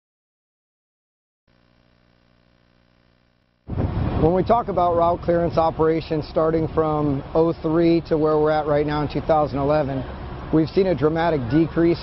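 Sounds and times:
faint steady hum: 0:01.5 - 0:04.1.

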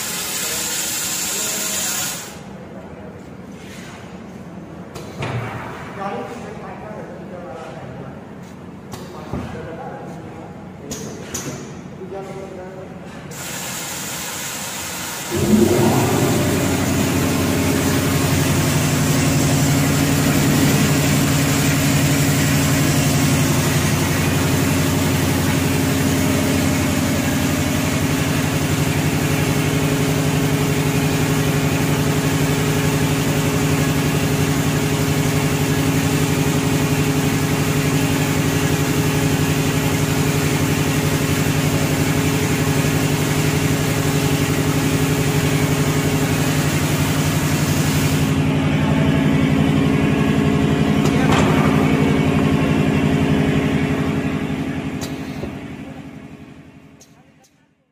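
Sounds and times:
machine hissing: 0:13.4 - 0:29.6
peeling machine motor humming: 0:15.3 - 0:28.2.

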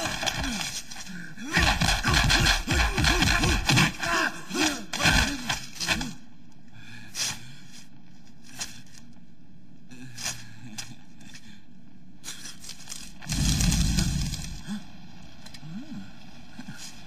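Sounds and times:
fighters grunting and shouting: 0:00.0 - 0:06.2
punch and kick impacts: 0:01.6 - 0:03.9.

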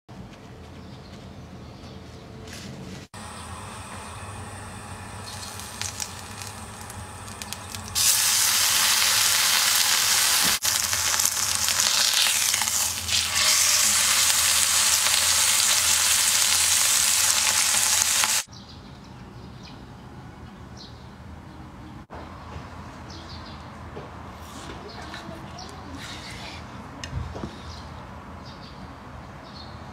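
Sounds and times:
steak sizzling in oil: 0:05.0 - 0:18.5.

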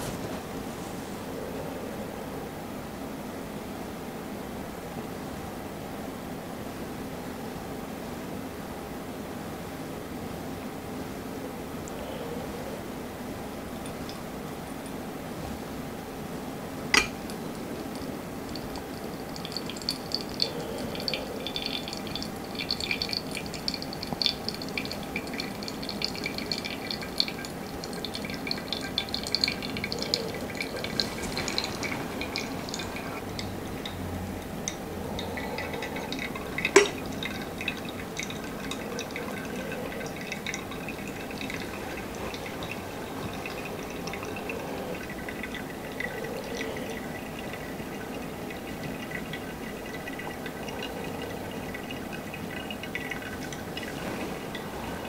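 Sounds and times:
coffee dripping into glass: 0:13.8 - 0:15.0, 0:16.9 - 0:55.0
hot water pouring from kettle: 0:16.9 - 0:55.0.

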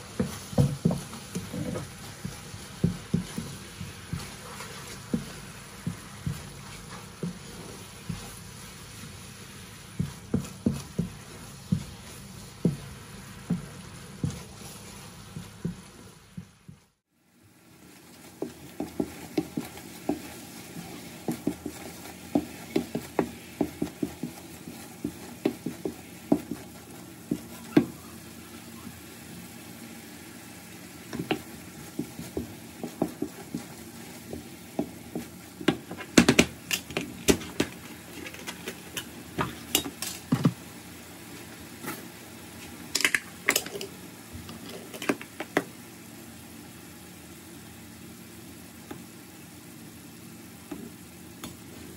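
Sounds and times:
wooden spoon scraping a pan: 0:00.0 - 0:16.0, 0:17.9 - 0:29.5, 0:30.9 - 0:40.5
food sizzling: 0:00.0 - 0:51.9.

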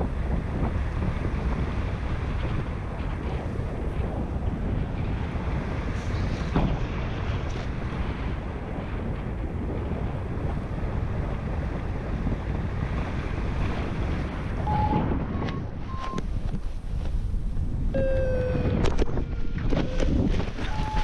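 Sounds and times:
wind rushing over microphone: 0:00.0 - 0:21.0
short electronic beeps: 0:14.7 - 0:16.2, 0:18.0 - 0:18.8, 0:20.7 - 0:21.0.

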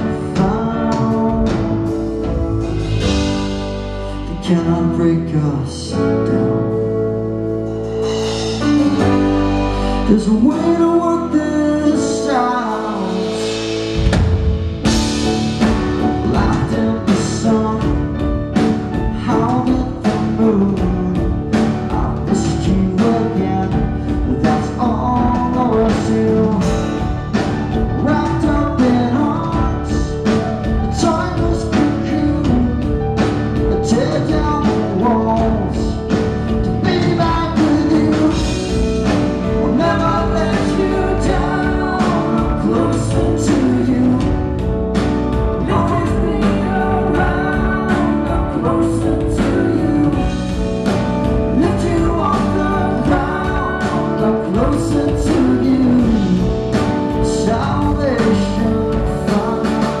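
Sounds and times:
person singing: 0:00.0 - 0:07.2, 0:08.0 - 0:14.0, 0:14.8 - 1:00.0
live rock band playing: 0:00.0 - 1:00.0.

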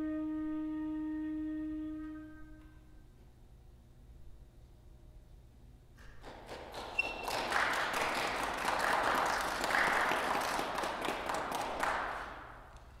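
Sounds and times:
audience applauding: 0:06.2 - 0:12.8.

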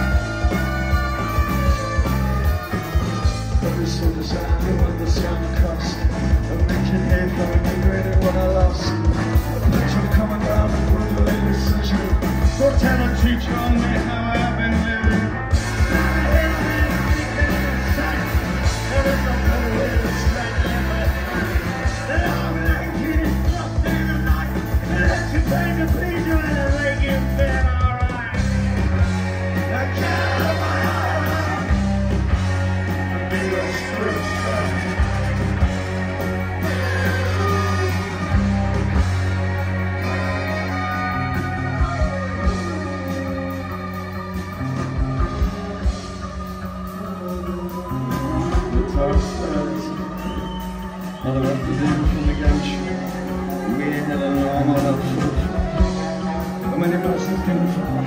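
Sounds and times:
saxophone: 0:00.0 - 0:03.8, 0:29.0 - 0:58.0
live rock band: 0:00.0 - 0:58.0.

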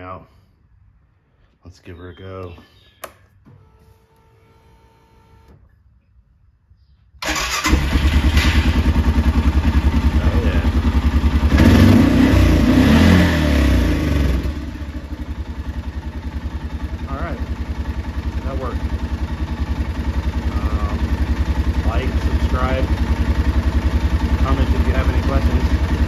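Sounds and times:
engine idling: 0:07.2 - 0:26.0
utility vehicle engine starting: 0:07.2 - 0:26.0.

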